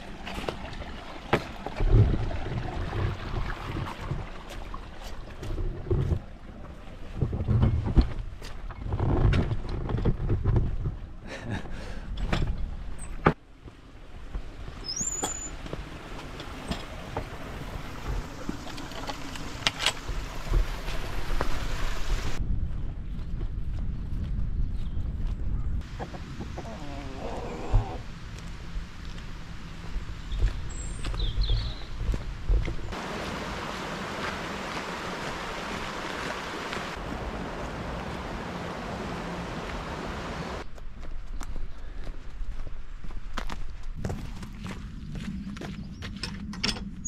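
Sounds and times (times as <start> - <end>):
stream rushing: 0.0 - 7.1, 14.1 - 22.4, 32.9 - 40.6
footsteps on muddy ground: 0.0 - 7.2, 13.6 - 25.6, 27.8 - 46.5
wind on microphone: 19.5 - 28.2.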